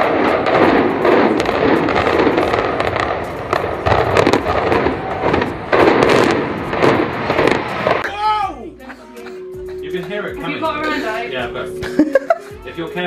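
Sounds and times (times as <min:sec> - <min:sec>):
demolition charges banging: 0:00.0 - 0:08.0.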